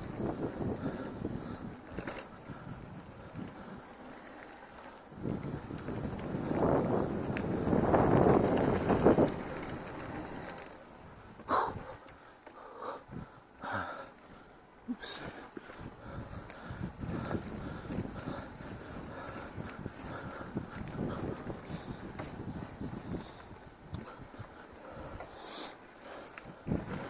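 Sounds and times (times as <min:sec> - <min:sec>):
bike tyres on dirt trail: 0:00.0 - 0:27.0.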